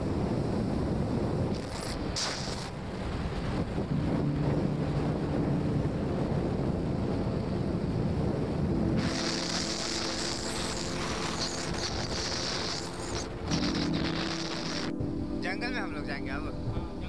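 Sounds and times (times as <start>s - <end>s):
wind buffeting microphone: 0.0s - 17.0s
high steady shrill sound: 9.0s - 15.5s.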